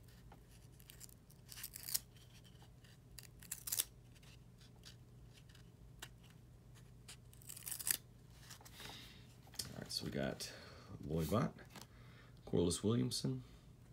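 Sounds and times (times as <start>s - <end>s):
cards sliding and scraping: 0.0s - 9.7s.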